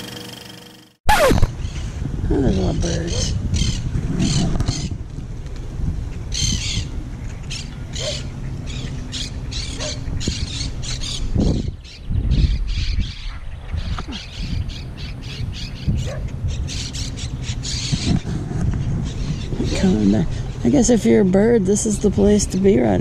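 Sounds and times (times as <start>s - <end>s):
wind buffeting microphone: 1.4s - 23.0s
flock of birds calling: 6.2s - 20.9s.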